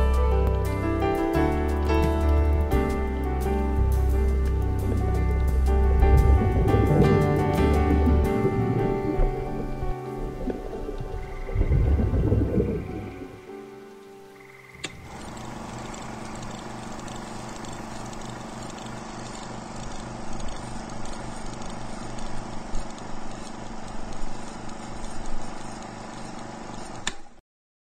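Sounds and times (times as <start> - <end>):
ride-on lawn mower engine running: 0.0 - 12.0, 14.6 - 27.2.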